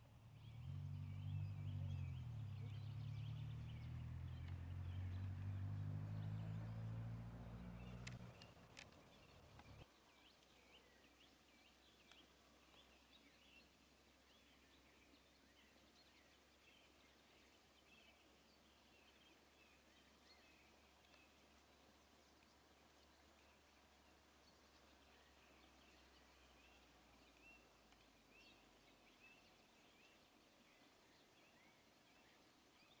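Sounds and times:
small birds chirping: 0.0 - 33.0
sharp clicks: 7.9 - 9.8.

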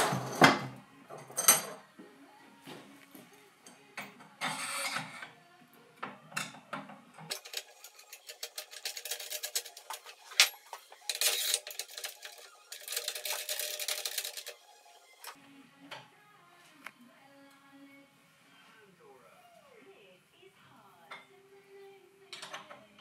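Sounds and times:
metal scraping: 4.4 - 5.3, 7.3 - 15.4
metallic clicking and rattling: 7.2 - 14.6.

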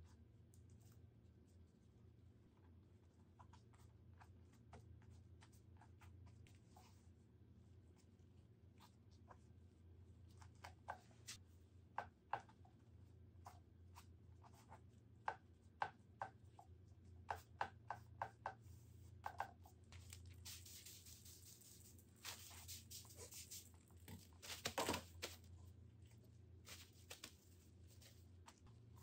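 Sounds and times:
faint low hum: 0.0 - 29.0
paper crinkling and rustling: 19.9 - 25.5.

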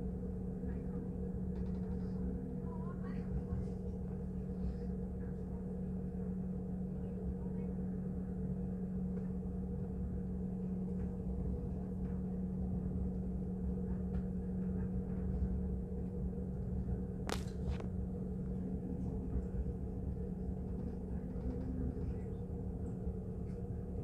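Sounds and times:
train rumble from inside: 0.0 - 24.0.

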